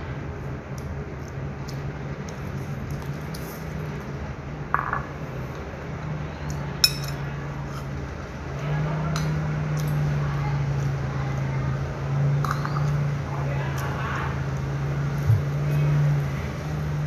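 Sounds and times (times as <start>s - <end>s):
spoon clinking ceramic bowl: 6.8s - 7.2s
steady low hum: 14.3s - 17.0s.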